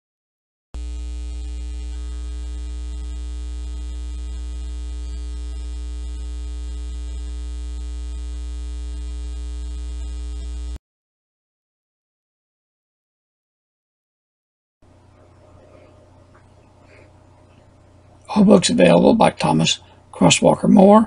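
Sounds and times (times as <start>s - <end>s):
electrical mains hum: 0.8s - 10.8s, 14.8s - 21.0s.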